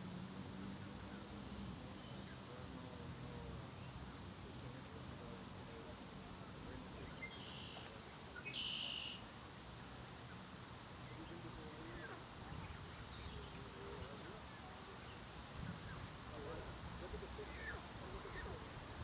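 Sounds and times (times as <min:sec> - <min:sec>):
low outdoor background noise: 0:00.0 - 0:19.0
high-pitched bird calls: 0:07.3 - 0:09.2.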